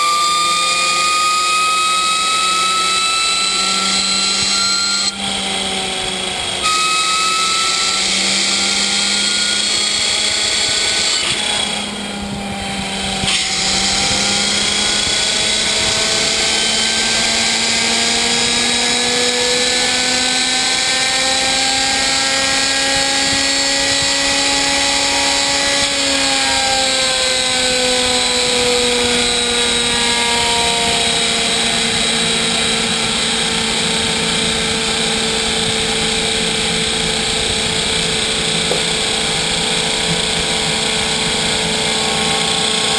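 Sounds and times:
gas turbine whining: 0:00.0 - 0:42.9.

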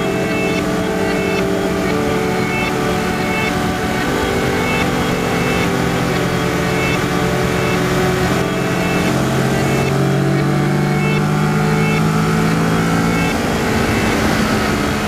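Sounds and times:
wind noise: 0:13.3 - 0:15.0.

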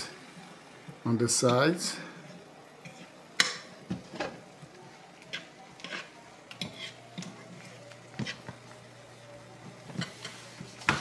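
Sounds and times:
utensils scraping frying pans: 0:05.2 - 0:08.7, 0:09.8 - 0:11.0.

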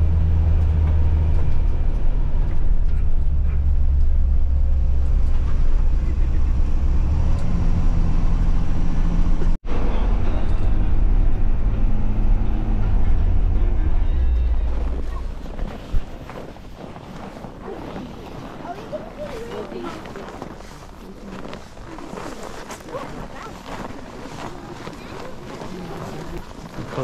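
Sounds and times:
bus engine droning: 0:00.0 - 0:16.3
road noise: 0:00.0 - 0:27.0.

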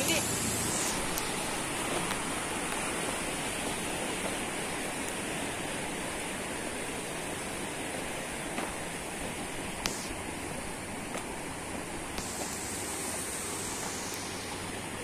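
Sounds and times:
floodwater rushing down a stream: 0:00.0 - 0:15.0.

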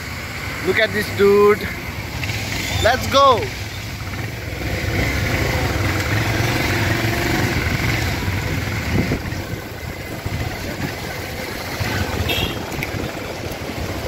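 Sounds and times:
engine humming: 0:00.0 - 0:14.0.

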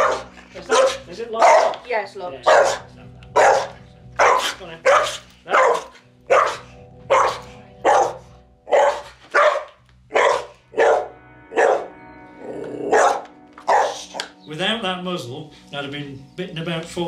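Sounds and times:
dog barking: 0:00.0 - 0:12.0, 0:12.9 - 0:14.3.

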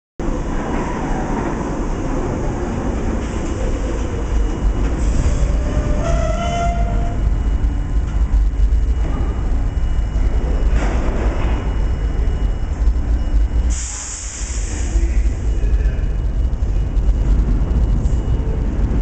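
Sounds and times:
train wheels rumbling on rails: 0:00.2 - 0:19.0
high-pitched brake squeal: 0:05.0 - 0:07.4.

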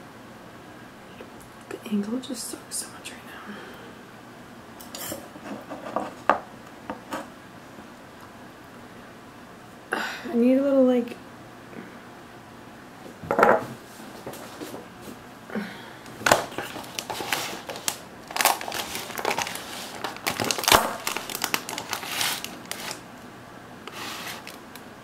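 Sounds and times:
crinkling handling noises: 0:16.1 - 0:23.1, 0:23.9 - 0:24.9
sharp crackles: 0:16.3 - 0:23.0.

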